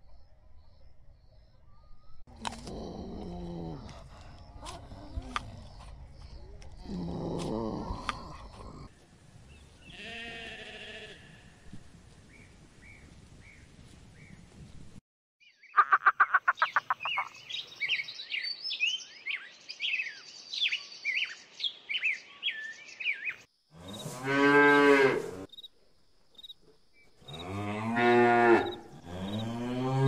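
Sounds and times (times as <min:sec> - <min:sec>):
birds chirping: 0:15.4 - 0:23.5
cow mooing: 0:23.8 - 0:25.5, 0:27.4 - 0:30.0.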